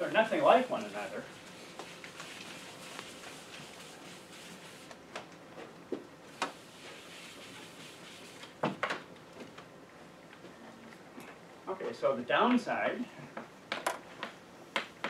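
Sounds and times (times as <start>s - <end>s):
eraser rubbing blackboard: 0.0s - 5.0s, 6.4s - 8.5s.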